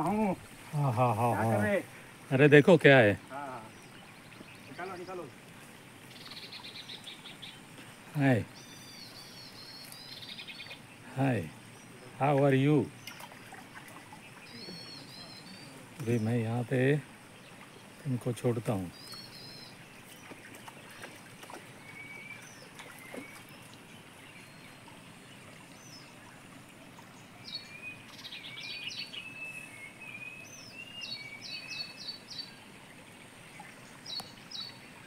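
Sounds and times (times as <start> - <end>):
faint outdoor hiss: 0.0 - 35.0
small birds chirping: 0.0 - 35.0.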